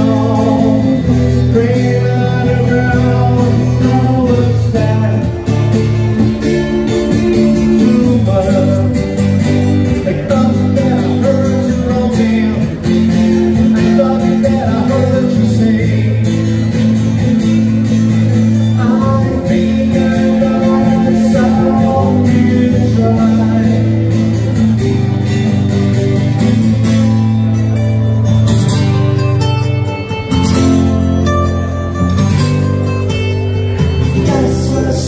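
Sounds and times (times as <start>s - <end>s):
electric guitar: 0.0s - 35.0s
rock band playing live: 0.0s - 35.0s.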